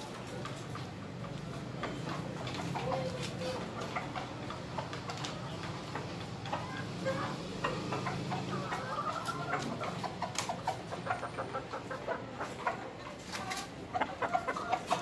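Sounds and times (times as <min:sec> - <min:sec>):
chickens clucking: 0:00.0 - 0:15.0.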